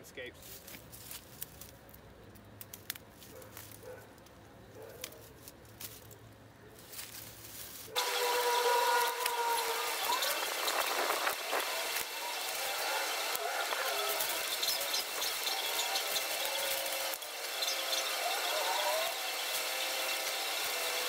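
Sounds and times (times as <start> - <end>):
dry canes crackling and rustling: 0.4 - 21.0
hand pruners snipping: 8.0 - 21.0.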